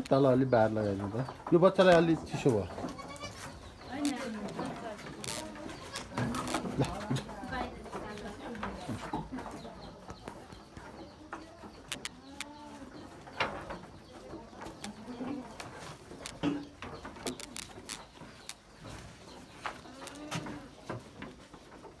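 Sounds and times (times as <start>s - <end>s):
fodder rustling: 0.0s - 22.0s
hooves knocking on wood: 0.0s - 22.0s
goat calling: 2.8s - 4.5s, 5.1s - 7.1s.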